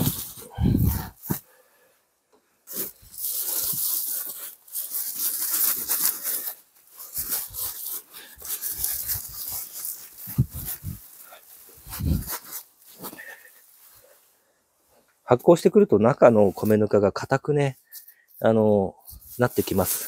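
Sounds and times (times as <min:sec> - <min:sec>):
plastic bags rustling and scraping: 0:00.0 - 0:01.5, 0:02.6 - 0:14.3, 0:19.1 - 0:20.0.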